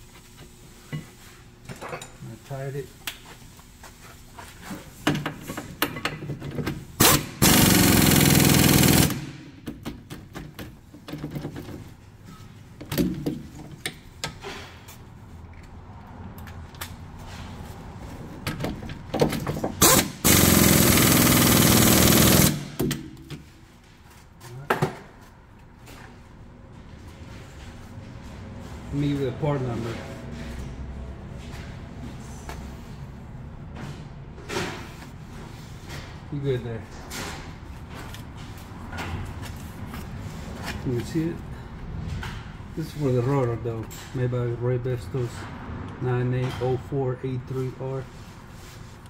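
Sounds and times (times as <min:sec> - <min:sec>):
impact wrench running: 0:06.9 - 0:09.8, 0:19.8 - 0:23.3.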